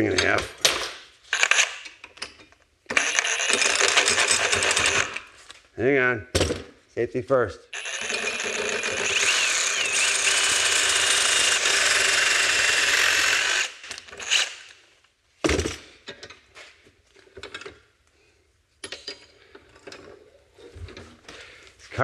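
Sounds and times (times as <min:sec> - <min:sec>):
power saw cutting steel: 0:02.9 - 0:05.2, 0:07.8 - 0:14.7.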